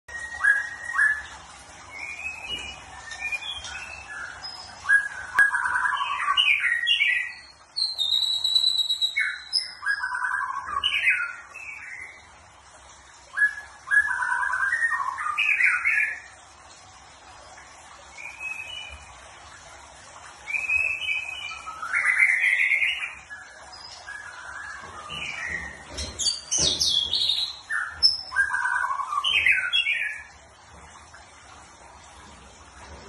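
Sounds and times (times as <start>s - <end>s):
songbird chirping and trilling: 0.1s - 12.3s, 13.2s - 16.4s, 18.1s - 19.1s, 20.4s - 30.4s.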